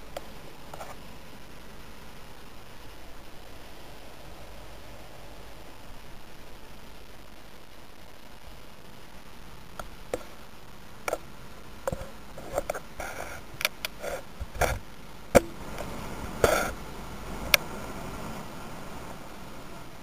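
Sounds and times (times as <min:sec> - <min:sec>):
low steady hiss: 0:00.0 - 0:20.0
pops and crackles: 0:09.6 - 0:16.8.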